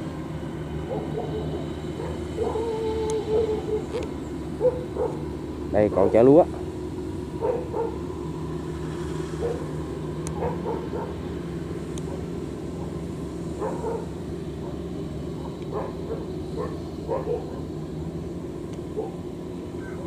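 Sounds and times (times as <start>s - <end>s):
tracked carrier engine running: 0.0s - 20.0s
dog barking: 0.9s - 3.9s, 4.6s - 5.2s, 7.4s - 8.0s, 9.4s - 9.7s, 10.4s - 11.2s, 13.6s - 14.8s, 15.4s - 17.7s, 19.0s - 19.2s.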